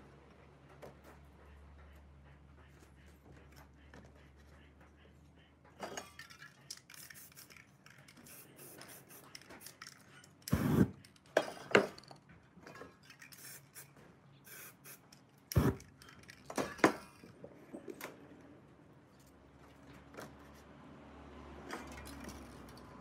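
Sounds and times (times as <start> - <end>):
spray can hissing: 6.9 - 7.6, 8.2 - 9.4, 13.3 - 13.9, 14.5 - 15.8.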